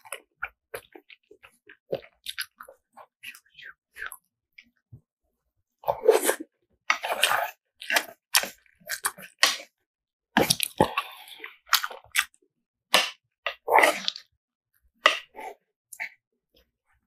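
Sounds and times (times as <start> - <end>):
chewing noodles: 0.0 - 4.2, 5.8 - 9.7, 10.4 - 12.4.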